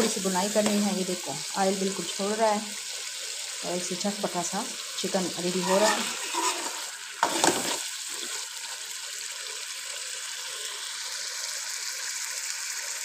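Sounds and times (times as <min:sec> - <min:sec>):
curry sizzling and bubbling: 0:00.0 - 0:13.0
spoon stirring: 0:05.6 - 0:08.4.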